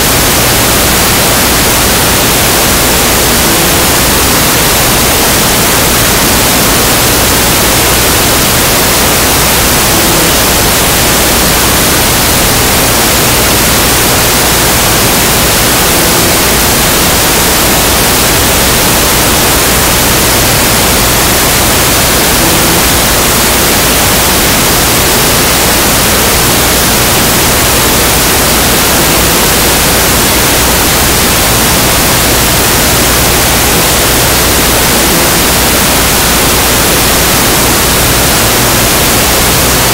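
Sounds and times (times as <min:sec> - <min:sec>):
loud static hiss: 0:00.0 - 0:39.9.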